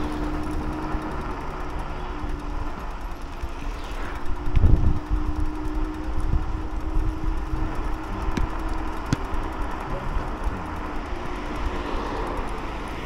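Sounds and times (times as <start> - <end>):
electric scooter hum: 0.0 - 13.0
wind rushing over microphone: 4.1 - 8.6.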